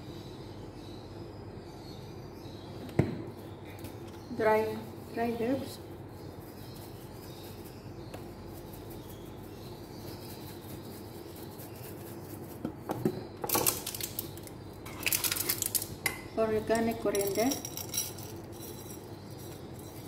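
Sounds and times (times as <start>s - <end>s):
low background hum: 0.0s - 20.0s
spice jar clicking and rattling: 13.4s - 16.0s, 16.8s - 20.0s.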